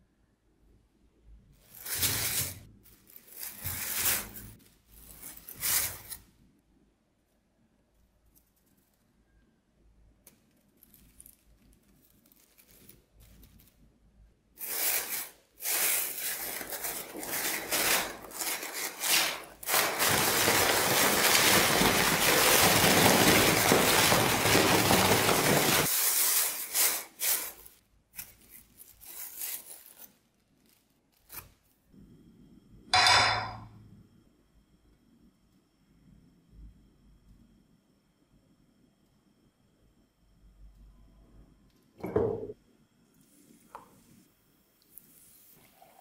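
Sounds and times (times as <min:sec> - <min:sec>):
plastic bag crinkling and rustling: 0:01.6 - 0:06.2, 0:10.6 - 0:13.9, 0:14.6 - 0:31.6.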